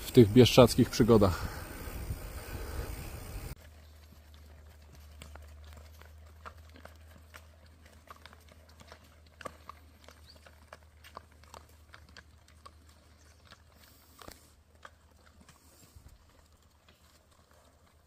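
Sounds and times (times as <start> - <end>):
horse hooves on asphalt: 0.0 - 18.0.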